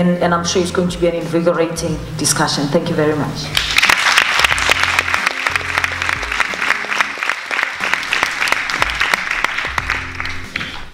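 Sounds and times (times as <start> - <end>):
background music: 0.0 - 10.9
audience applauding: 3.6 - 10.9.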